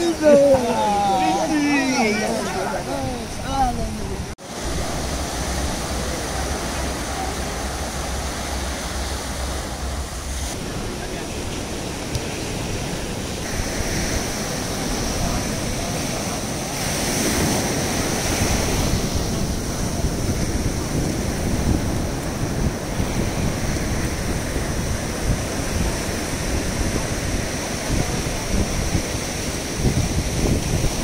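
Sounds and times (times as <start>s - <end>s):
waves washing onto beach: 0.0s - 31.0s
wind buffeting microphone: 0.0s - 31.0s.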